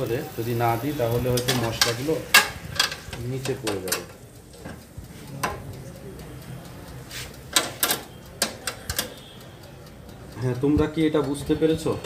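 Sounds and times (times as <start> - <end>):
metal clicks of oven rack: 1.3 - 4.8, 7.5 - 9.2.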